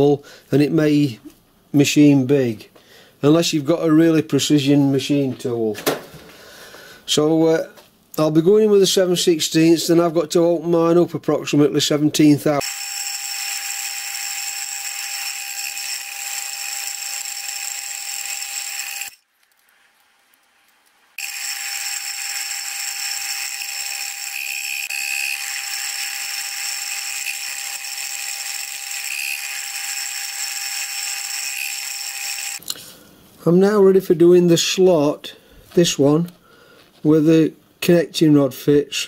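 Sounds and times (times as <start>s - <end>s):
milling machine whining: 12.6s - 19.2s, 21.2s - 32.7s.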